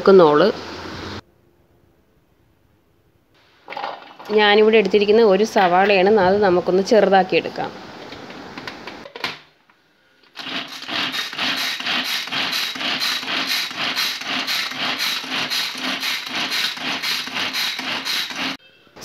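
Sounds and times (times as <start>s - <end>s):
pull-cord chopper whirring: 10.3s - 18.6s.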